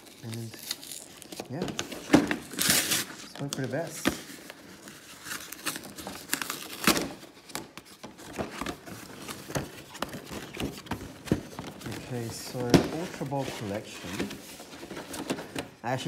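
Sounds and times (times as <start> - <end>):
seal tearing: 0.0 - 3.9, 5.0 - 7.2
packaging rustling and crinkling: 0.0 - 16.0.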